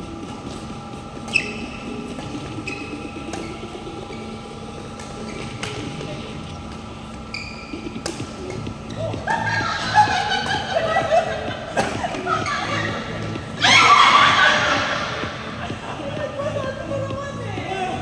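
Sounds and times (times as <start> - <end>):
sneaker squeaks on court floor: 1.2 - 4.4, 5.1 - 5.9, 7.2 - 8.3
racket hitting shuttlecock: 3.3 - 3.5, 8.0 - 8.6.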